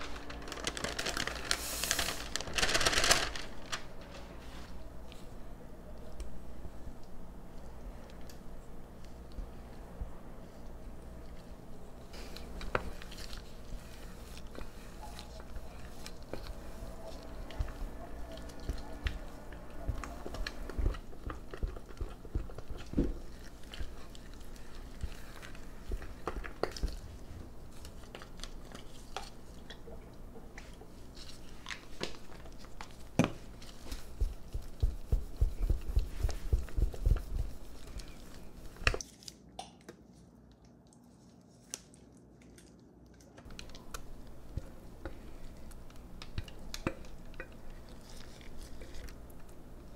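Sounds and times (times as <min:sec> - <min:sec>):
spatula stirring sticky batter: 0:32.7 - 0:39.0.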